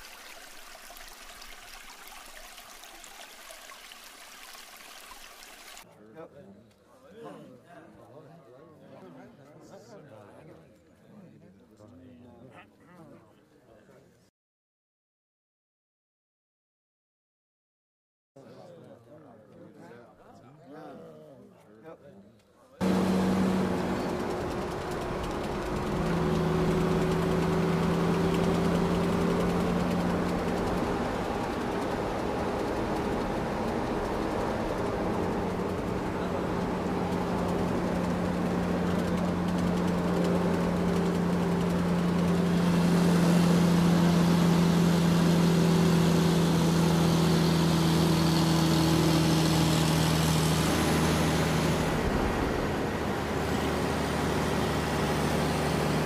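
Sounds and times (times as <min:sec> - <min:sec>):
toy boat engine drone: 0:22.8 - 0:56.0.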